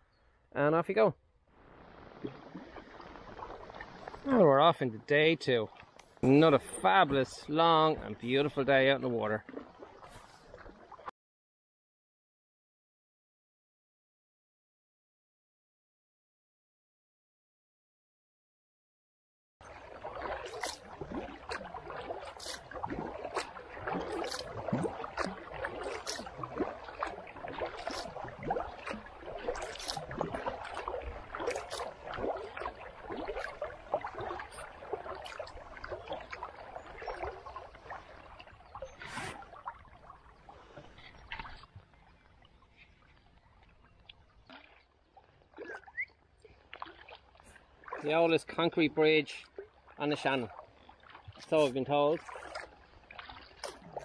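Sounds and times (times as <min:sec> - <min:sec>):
kayak paddle splashing: 0:01.6 - 0:04.5, 0:05.7 - 0:11.1, 0:19.6 - 0:54.0
water dripping and gurgling: 0:01.7 - 0:11.1, 0:19.6 - 0:48.6, 0:49.2 - 0:54.0.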